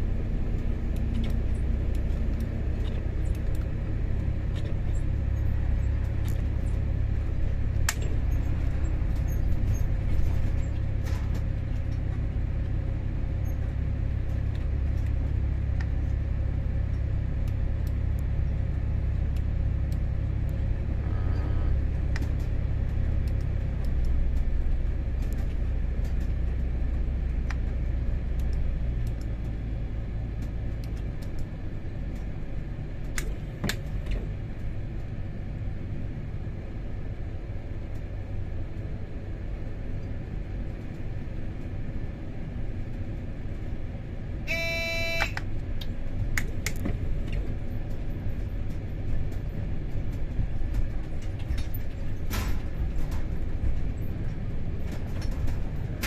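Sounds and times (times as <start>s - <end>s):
diesel engine low rumble: 0.0s - 56.0s
wheels clicking over rail joints: 45.3s - 56.0s.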